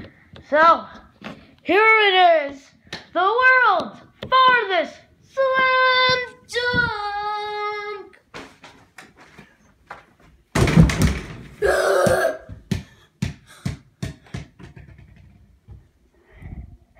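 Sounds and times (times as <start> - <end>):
ball thumping and rattling door: 10.5 - 11.6, 12.5 - 15.8
thumps on the floor: 10.6 - 11.5
person shouting: 11.6 - 12.5.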